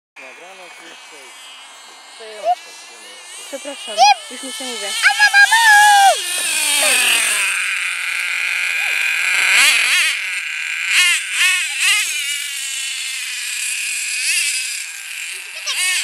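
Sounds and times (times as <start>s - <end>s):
nitro engine high-pitched whine: 0.2s - 16.0s.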